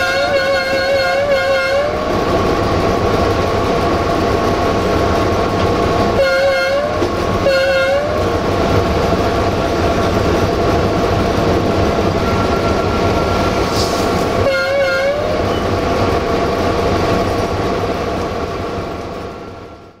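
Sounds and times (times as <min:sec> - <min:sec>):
locomotive horn blast: 0:00.0 - 0:02.1, 0:06.2 - 0:08.2, 0:12.2 - 0:15.6
locomotive engine running: 0:00.0 - 0:19.9.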